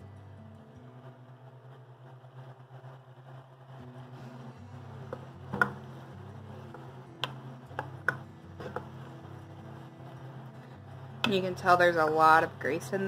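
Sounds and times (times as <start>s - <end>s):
vegetables sizzling: 0.8s - 13.0s
spoon stirring vegetables: 5.0s - 12.6s
wooden spoon knocking pot: 5.1s - 5.8s, 6.7s - 8.9s.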